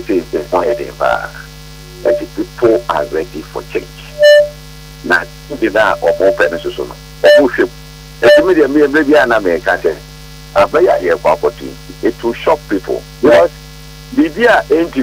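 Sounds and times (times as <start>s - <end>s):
person talking on telephone: 0.0s - 4.3s, 5.1s - 10.0s, 10.6s - 13.5s, 14.1s - 15.0s
electrical mains hum: 0.0s - 15.0s
short loud tone: 4.1s - 4.6s, 5.9s - 6.6s.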